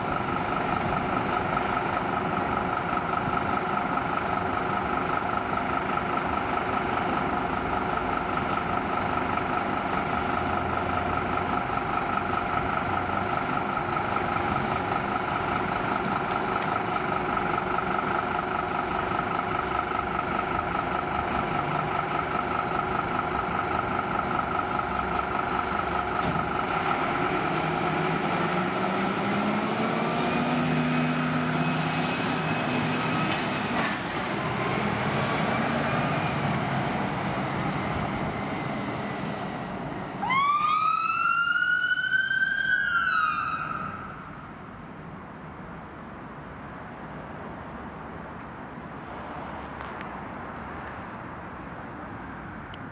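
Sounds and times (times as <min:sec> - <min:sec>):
diesel engine idling: 0:00.0 - 0:33.2, 0:34.3 - 0:40.5.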